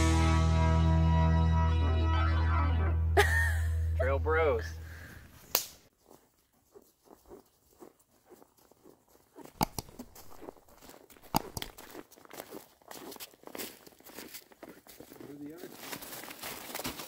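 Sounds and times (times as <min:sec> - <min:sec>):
footsteps crunching in snow: 0:05.3 - 0:17.0.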